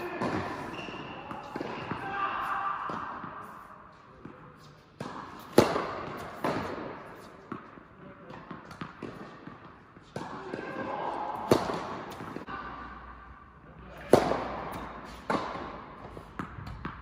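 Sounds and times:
tennis ball bouncing: 0:00.0 - 0:02.1, 0:04.2 - 0:12.5, 0:14.0 - 0:17.0
tennis ball strikes echoing: 0:00.0 - 0:03.5, 0:05.0 - 0:12.8, 0:14.0 - 0:17.0.

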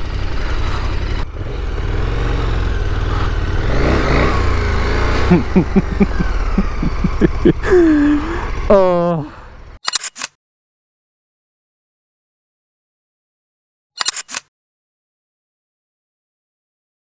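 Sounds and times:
motorcycle engine at low revs: 0:00.0 - 0:09.8.

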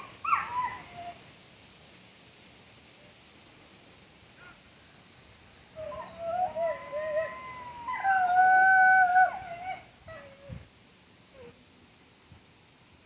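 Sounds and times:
wolves howling: 0:05.8 - 0:10.6.

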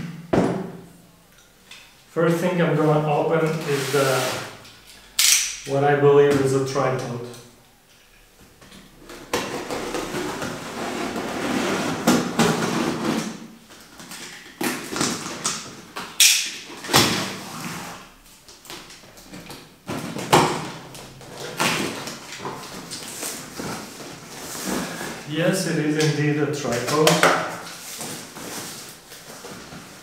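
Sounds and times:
box cutter slitting packing tape: 0:05.2 - 0:05.6.

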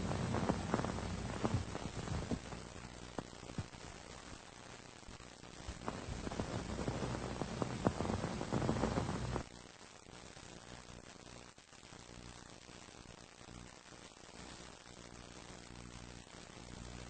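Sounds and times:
surface hiss: 0:00.0 - 0:02.5
low hum: 0:00.0 - 0:03.6
record crackle and clicks: 0:00.0 - 0:17.0.

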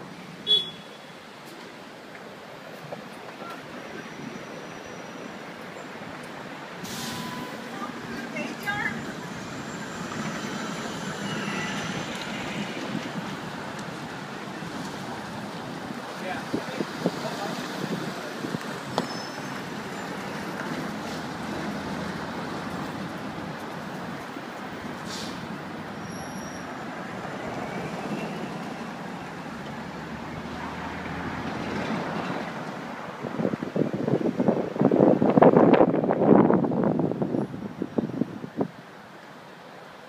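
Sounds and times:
city street traffic: 0:00.0 - 0:40.0.

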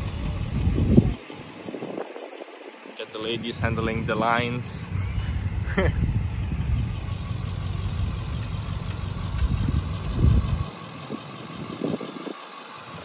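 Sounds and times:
engine idling: 0:00.0 - 0:13.0.

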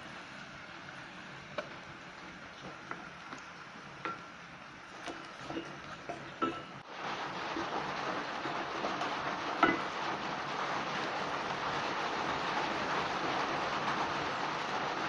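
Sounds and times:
steady hiss of frying: 0:00.0 - 0:15.0
wooden spoon scraping a pot: 0:04.9 - 0:06.8.

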